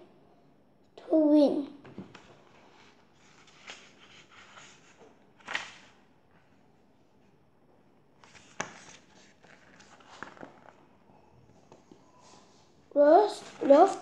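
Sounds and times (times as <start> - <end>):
book pages rustling: 2.0 - 6.6, 8.2 - 12.6, 13.2 - 14.0.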